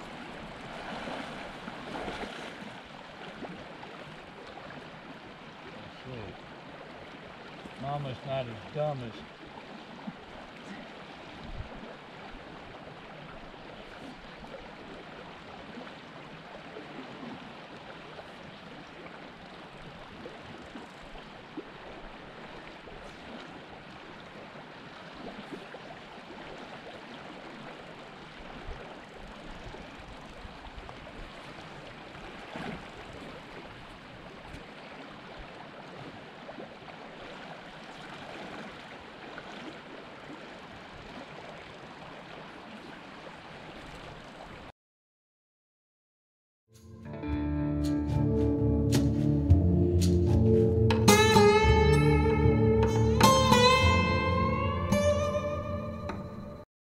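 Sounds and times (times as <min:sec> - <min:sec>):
river flowing over rocks: 0:00.0 - 0:43.5.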